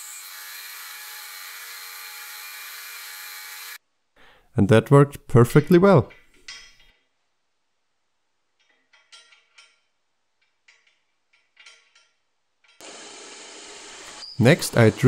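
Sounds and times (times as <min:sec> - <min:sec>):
bolts clicking and scraping in metal track: 0:08.6 - 0:12.8.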